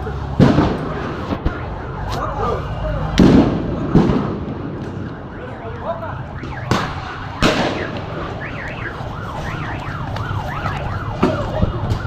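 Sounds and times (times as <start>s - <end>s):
siren yelping: 0.0s - 12.0s
sharp bangs: 0.3s - 2.3s, 3.0s - 5.6s, 6.2s - 12.0s.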